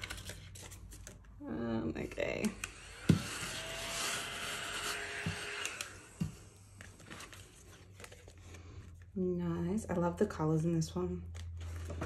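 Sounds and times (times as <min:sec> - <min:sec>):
paper rubbing and rustling: 0:06.8 - 0:08.5.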